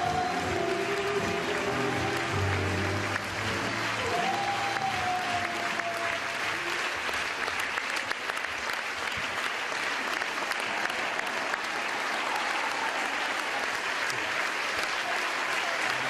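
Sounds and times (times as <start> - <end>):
rumba music: 0.0 - 5.8
audience applauding: 0.0 - 16.0.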